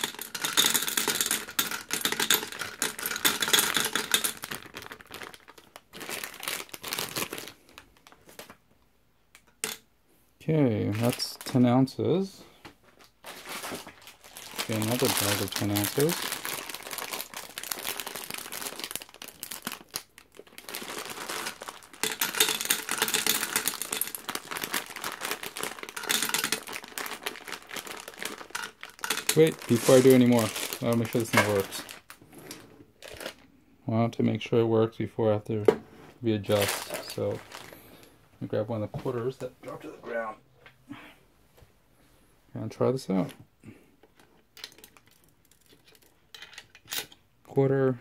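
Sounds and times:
candies clattering into glass: 0.0 - 7.5, 13.5 - 33.4, 36.5 - 37.7
plastic bag crinkling: 0.0 - 8.6, 10.8 - 11.7, 12.8 - 33.5, 36.4 - 38.1.

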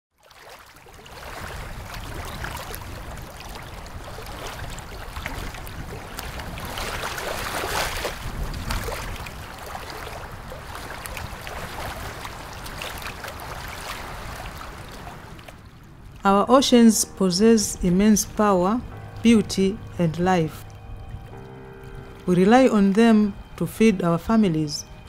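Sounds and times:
small water splashes: 0.1 - 16.2
water lapping around boat: 0.1 - 16.3.

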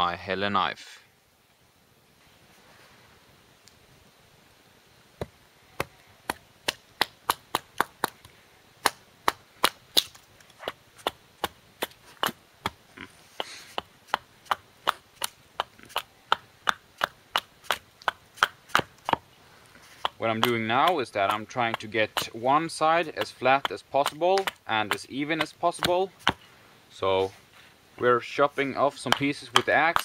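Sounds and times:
axe chopping wood: 8.8 - 12.8, 13.4 - 19.2, 20.0 - 26.4, 29.0 - 30.0.

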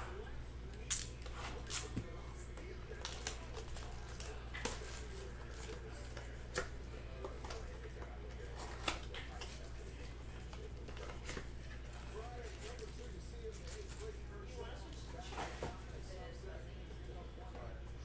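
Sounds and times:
cards being handled: 0.8 - 16.1
foil wrappers crinkling: 2.8 - 16.0.

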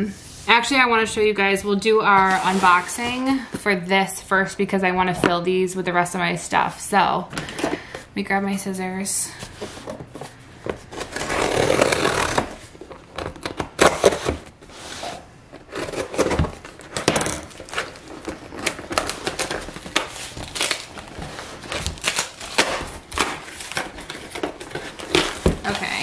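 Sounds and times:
packaging crinkling and rustling: 9.5 - 26.0.

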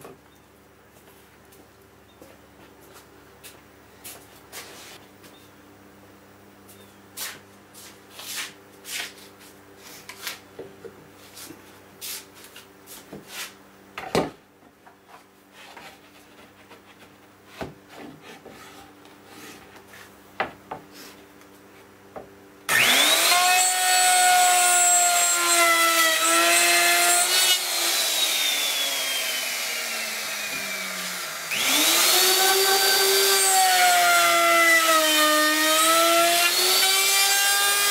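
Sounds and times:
electric router whining: 22.7 - 37.9.

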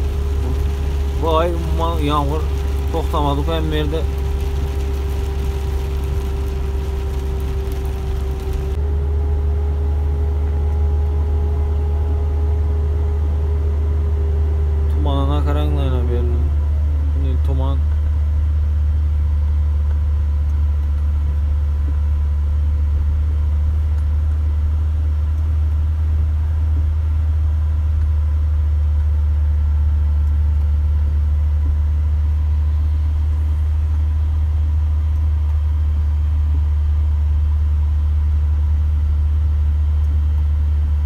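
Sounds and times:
truck diesel engine droning: 0.0 - 17.9.

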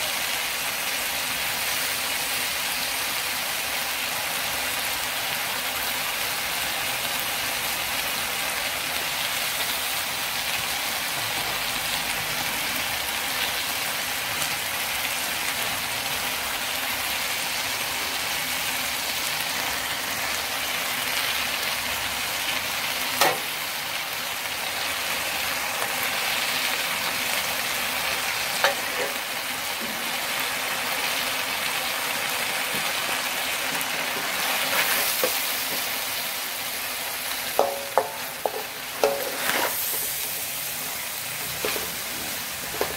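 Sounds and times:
food sizzling in a wok: 0.0 - 42.9
metal spatula clacking on pan: 23.2 - 23.5, 37.6 - 39.5.

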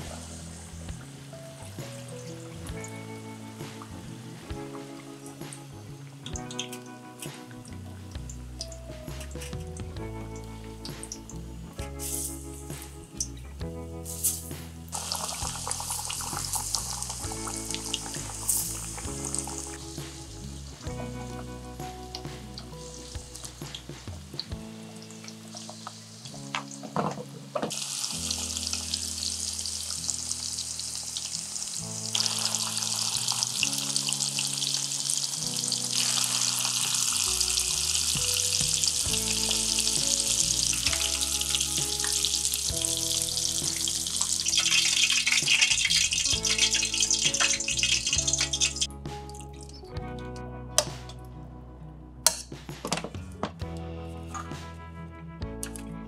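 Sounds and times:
fish deep-frying in hot oil: 0.0 - 9.3, 14.1 - 26.8, 27.7 - 48.9
soft background music: 0.0 - 56.0.

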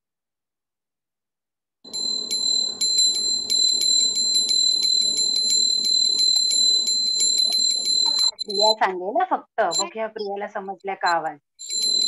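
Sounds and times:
bell rung rapidly: 1.9 - 8.8.

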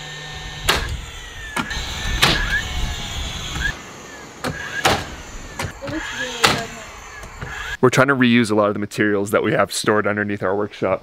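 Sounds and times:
nail gun firing: 0.6 - 2.6, 4.4 - 5.8, 6.4 - 7.3.

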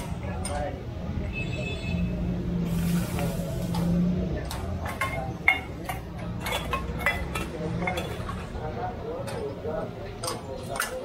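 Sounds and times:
metal teapots clinking: 0.0 - 0.8, 3.2 - 11.0.

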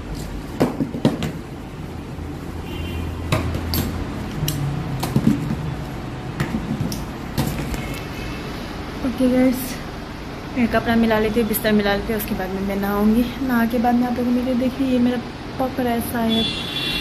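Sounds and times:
household objects knocking and clicking: 0.5 - 1.6, 3.3 - 8.0.

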